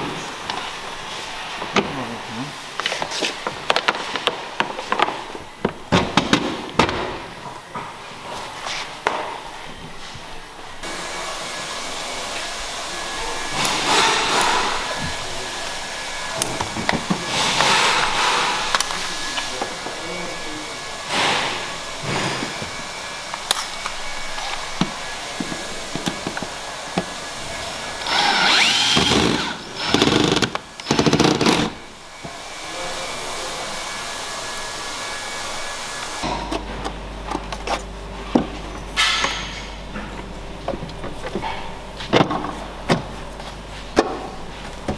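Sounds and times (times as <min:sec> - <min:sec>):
cordless screwdriver running: 0:28.0 - 0:31.8.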